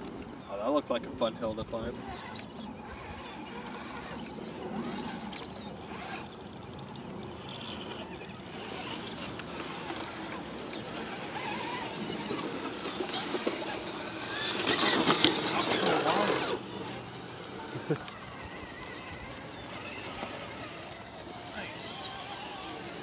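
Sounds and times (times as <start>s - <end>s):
small electric motors whirring: 0.0s - 23.0s
toy trucks driving over rock: 1.5s - 23.0s.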